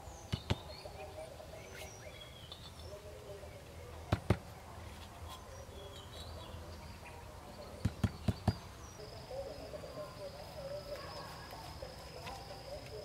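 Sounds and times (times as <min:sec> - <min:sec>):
birds chirping: 0:00.0 - 0:13.0
high insect call: 0:07.6 - 0:13.0.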